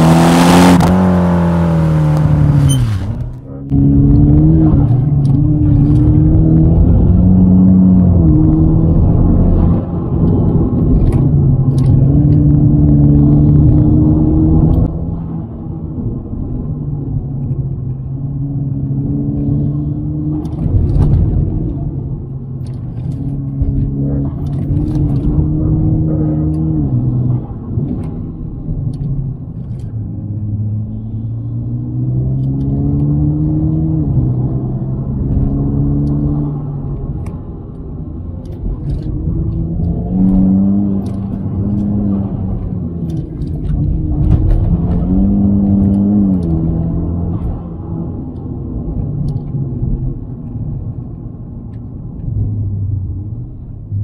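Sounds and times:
car engine revving under load: 0.0 - 15.2, 17.8 - 54.0
low road rumble: 0.0 - 54.0.

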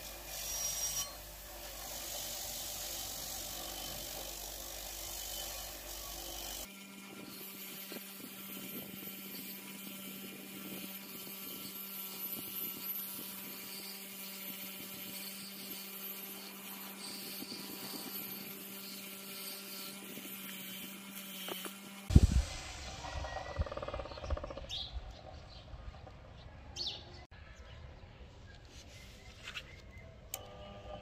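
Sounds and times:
bench grinder humming: 0.0 - 22.1.

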